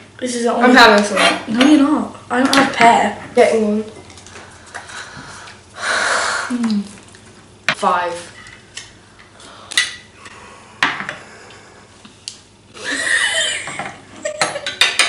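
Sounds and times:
people laughing: 12.8 - 14.7.

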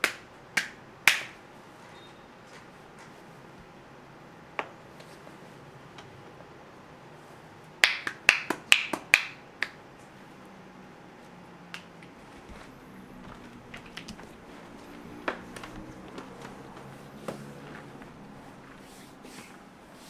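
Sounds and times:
hands snapping: 0.0 - 1.4, 7.8 - 9.8, 11.7 - 12.2.

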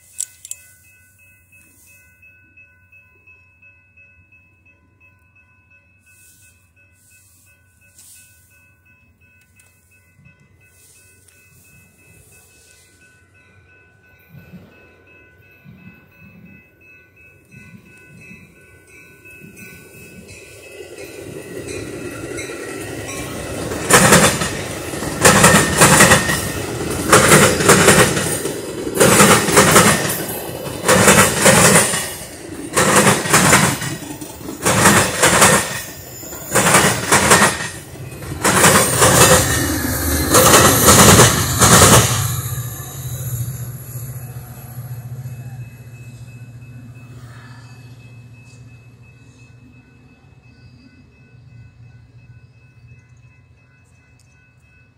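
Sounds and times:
train passing: 0.0 - 54.9
wheels clacking over rail joints: 20.2 - 43.2.

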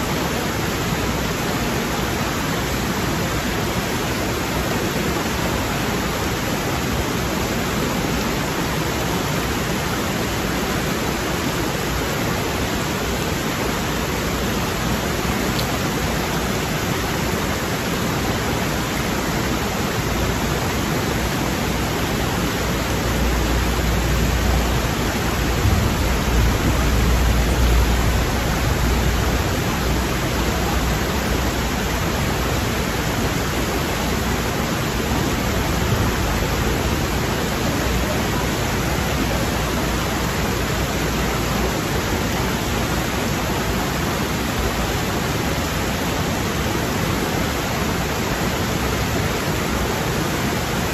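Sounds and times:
stream rushing over rocks: 0.0 - 50.9
low rumble: 23.5 - 31.7.

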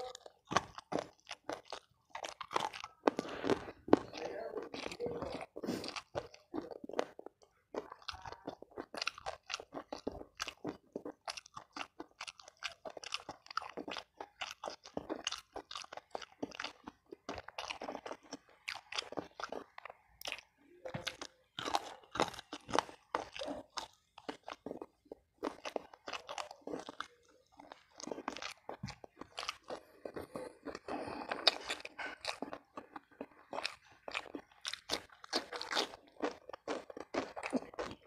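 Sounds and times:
chewing and biting crunchy bones: 0.0 - 38.0.

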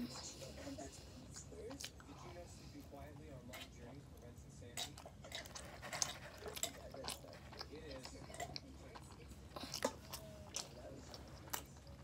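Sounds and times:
person chewing crunchy food: 4.6 - 12.0.

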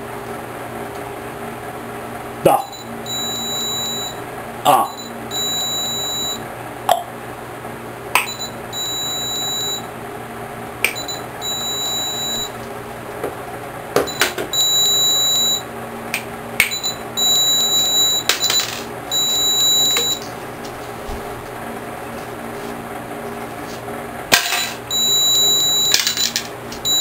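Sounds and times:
electronic beep: 2.6 - 6.4, 8.2 - 9.8, 10.9 - 12.5, 14.1 - 15.6, 16.6 - 20.3, 24.6 - 27.0.

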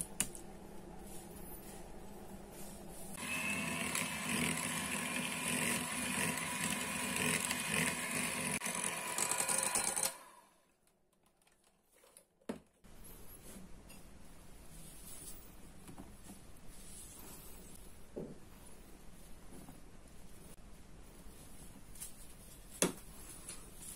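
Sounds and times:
electric hand mixer whisking: 3.2 - 10.6.

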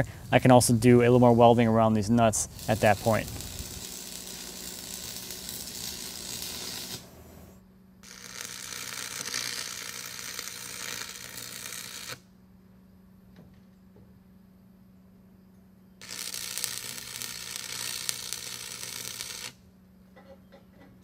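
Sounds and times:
welding arc crackling: 0.0 - 12.2, 16.0 - 19.6.

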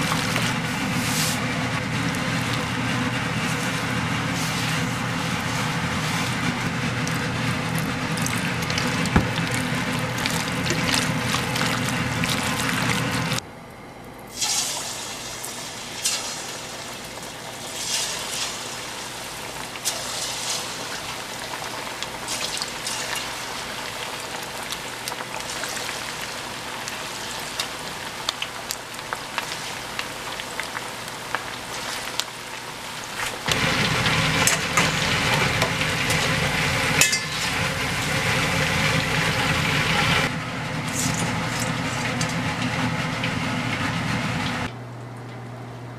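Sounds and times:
chicken rubbed in flour: 0.0 - 13.4
deep-frying sizzle and crackling: 0.0 - 13.4, 14.3 - 44.7.

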